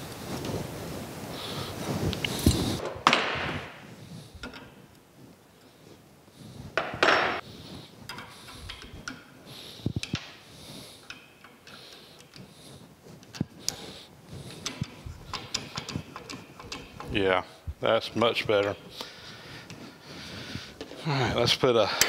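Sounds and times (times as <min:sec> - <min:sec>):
scraping rustle: 0:00.0 - 0:02.8
sharp metal clicks: 0:14.5 - 0:17.2.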